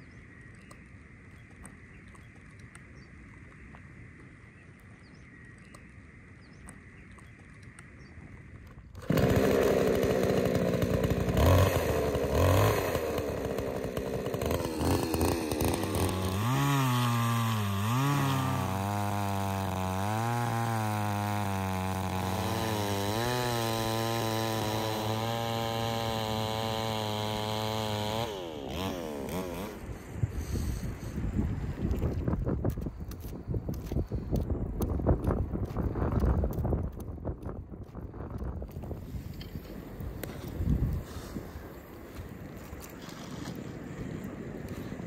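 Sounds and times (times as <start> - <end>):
chainsaw cutting wood: 9.0 - 44.0.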